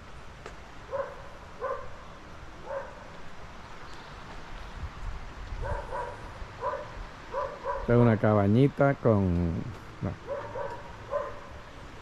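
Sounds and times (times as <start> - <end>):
dog barking: 0.9 - 2.0, 2.6 - 3.0, 5.6 - 8.0, 10.2 - 11.6.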